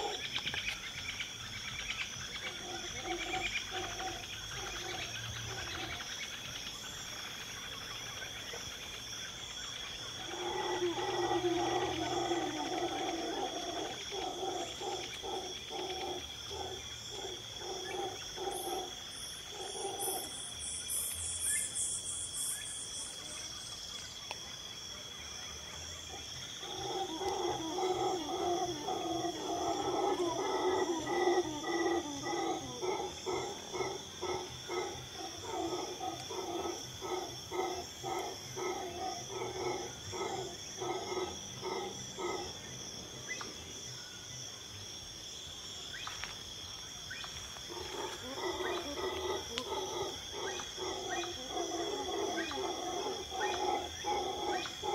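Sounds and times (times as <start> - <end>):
insects trilling: 0.0 - 54.9
low rapidly pulsing animal call: 10.2 - 20.6, 26.1 - 42.6.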